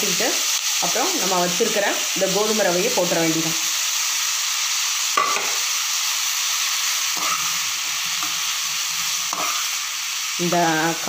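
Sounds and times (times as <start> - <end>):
vegetables sizzling in oil: 0.0 - 11.0
spatula scraping and knocking pan: 5.2 - 5.6, 7.2 - 8.5, 9.2 - 9.7.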